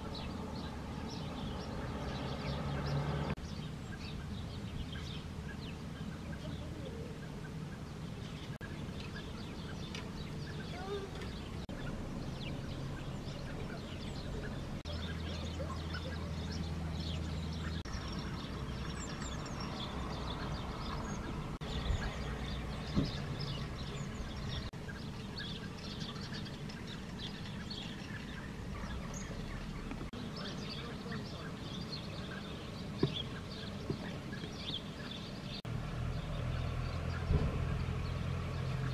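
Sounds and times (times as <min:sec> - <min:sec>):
small birds chirping: 0:00.0 - 0:38.9.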